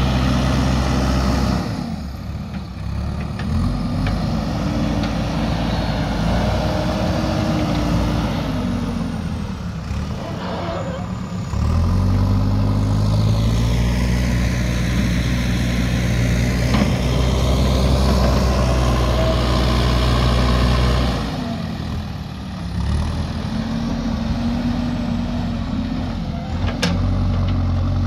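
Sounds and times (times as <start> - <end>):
diesel engine revving under load: 0.0 - 28.0.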